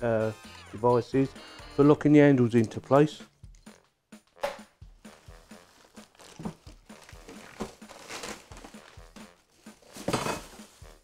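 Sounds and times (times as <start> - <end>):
faint background music: 0.0 - 11.0
plastic wrapping rustling: 5.2 - 11.0.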